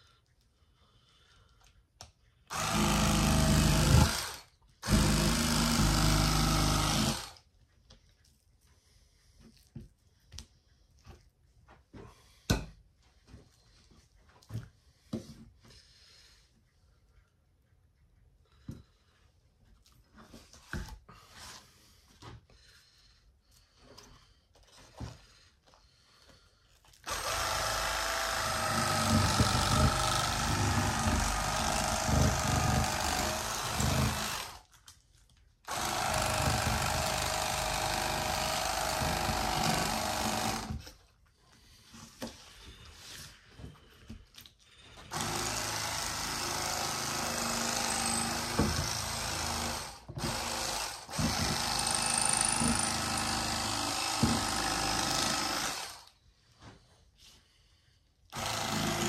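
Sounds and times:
electric fillet knife buzzing: 27.1 - 34.6.

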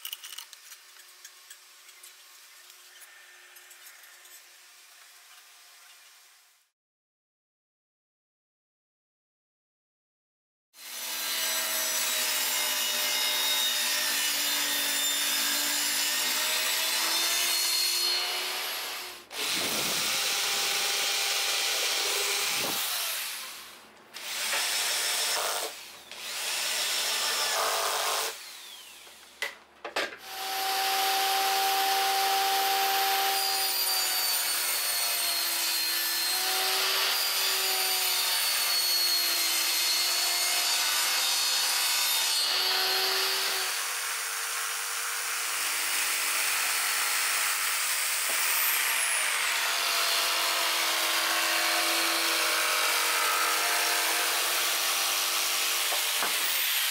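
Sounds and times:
table saw cutting plywood: 10.8 - 29.0, 30.2 - 56.9
cordless drill boring holes: 10.8 - 29.2, 30.2 - 56.9.

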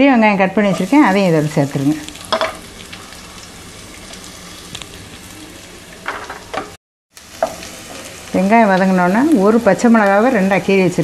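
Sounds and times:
onions sizzling in hot oil: 0.1 - 11.0
oil crackles: 1.7 - 10.4.

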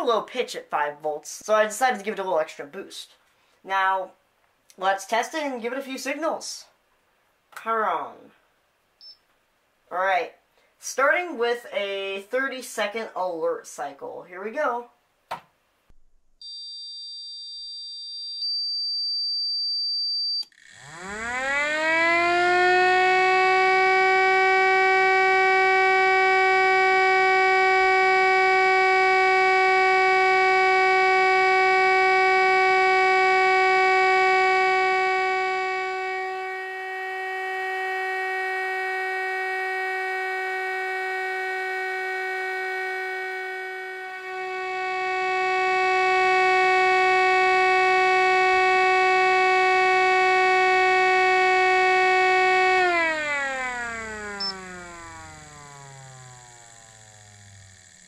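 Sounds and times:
siren steady wail: 20.4 - 58.0.

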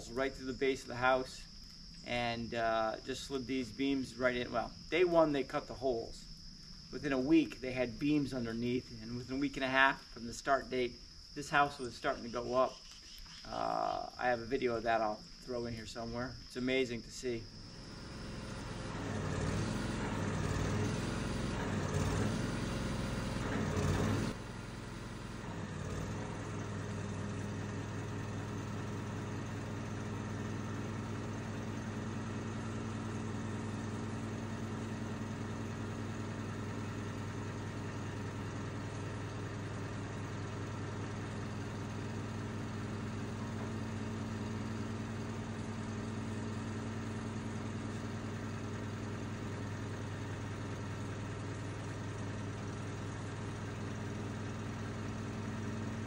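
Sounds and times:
engine idling: 17.4 - 56.0.

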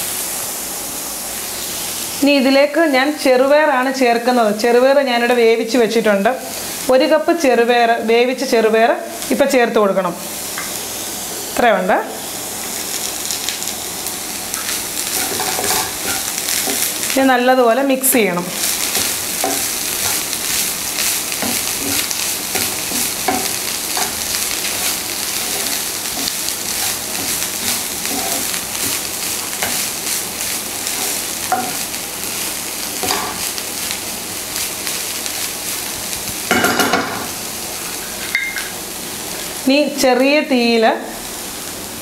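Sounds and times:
food sizzling in a frying pan: 0.0 - 42.0
wooden spatula scraping a pan: 18.6 - 30.2.

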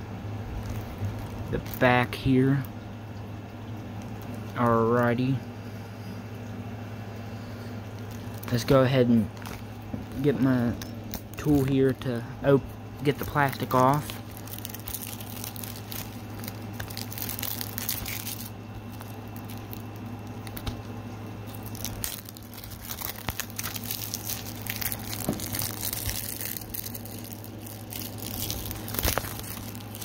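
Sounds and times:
steady low hum: 0.0 - 30.0
packaging crinkling and rustling: 0.4 - 2.7, 4.0 - 5.2, 7.8 - 12.3, 13.0 - 30.0
packaging tearing: 0.5 - 2.1, 8.0 - 12.2, 13.1 - 30.0.

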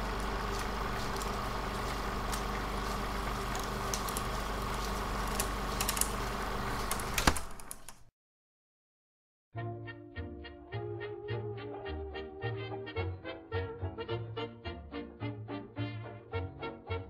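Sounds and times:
crackles and clicks: 0.0 - 8.0
film soundtrack hiss and hum: 0.0 - 8.1.

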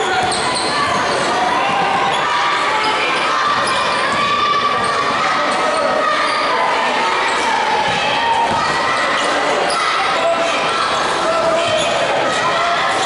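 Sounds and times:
crowd chatter in large hall: 0.0 - 13.0
basketball bouncing on court: 0.1 - 2.2.

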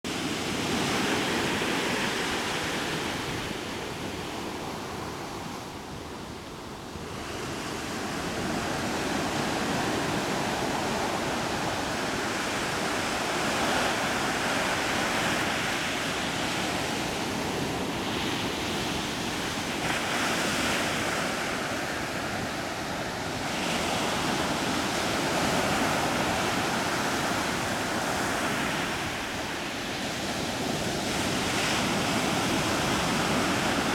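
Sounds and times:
wind: 0.0 - 33.9
ocean waves washing: 0.1 - 33.9.

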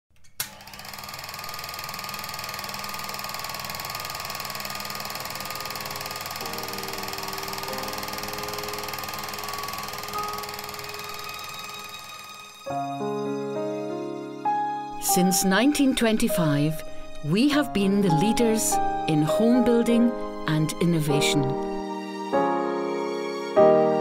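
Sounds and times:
film projector clatter: 0.2 - 12.6.

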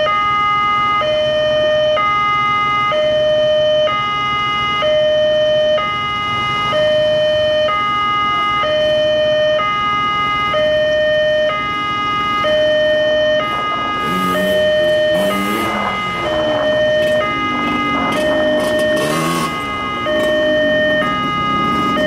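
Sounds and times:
two-tone crossing alarm: 0.0 - 22.0
engine revving: 13.4 - 22.0.

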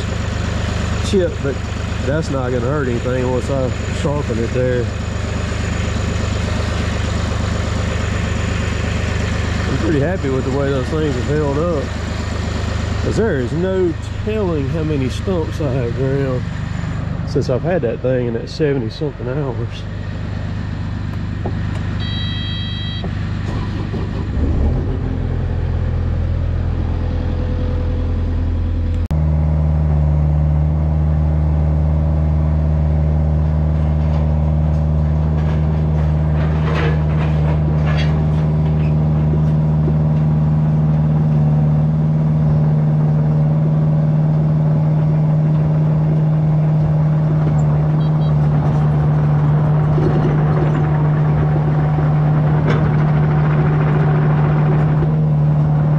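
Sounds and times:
diesel engine running: 0.0 - 55.9
short electronic beep: 22.0 - 23.1, 48.0 - 48.4.

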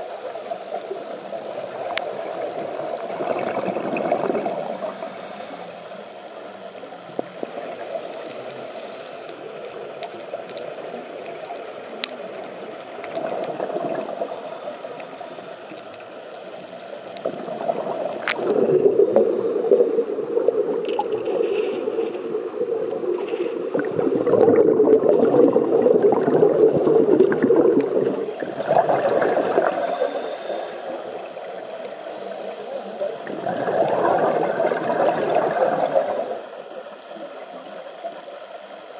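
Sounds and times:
scuba regulator breathing underwater: 3.2 - 6.3, 8.0 - 9.6, 13.2 - 16.0, 17.3 - 36.8.

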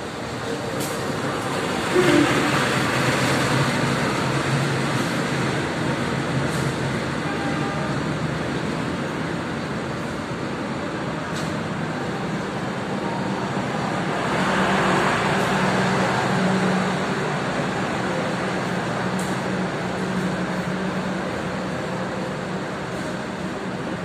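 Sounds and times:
train wheels rumbling on rails: 0.0 - 24.0.

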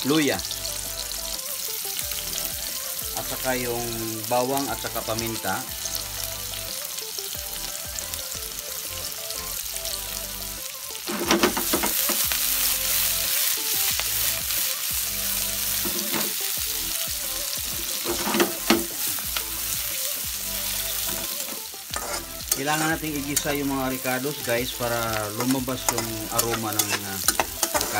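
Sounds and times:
food sizzling in hot oil: 0.0 - 27.9
food scraping and knocking wok: 11.0 - 27.9.

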